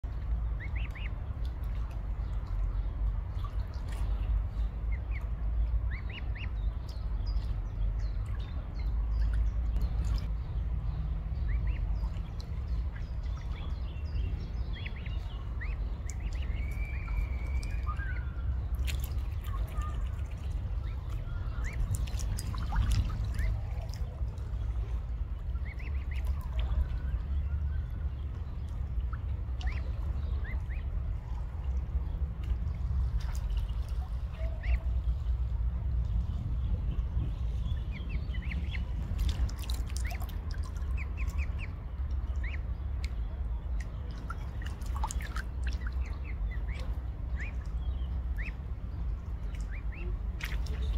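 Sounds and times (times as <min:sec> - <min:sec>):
low rumble: 0:00.0 - 0:50.9
small water splashes: 0:00.0 - 0:50.9
cygnets peeping: 0:00.1 - 0:50.9.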